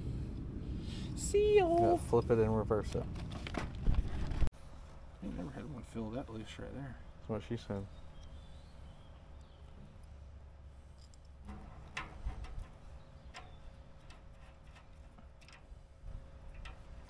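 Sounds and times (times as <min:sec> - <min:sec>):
steady low rumble: 0:00.0 - 0:05.2
tool clicking on copper tubing: 0:11.2 - 0:17.0.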